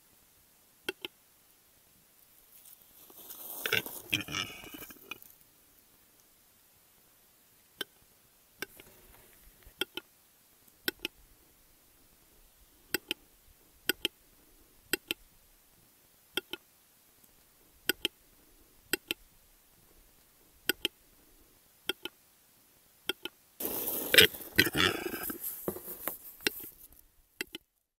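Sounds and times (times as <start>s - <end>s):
bird harsh scraping call: 3.4s - 5.2s, 23.6s - 25.7s.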